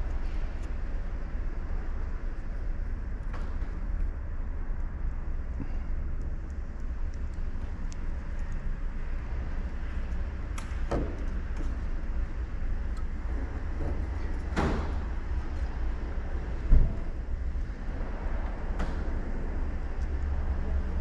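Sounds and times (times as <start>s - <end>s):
wires clicking and rustling: 0.0s - 15.8s
steady low rumble: 0.0s - 21.0s.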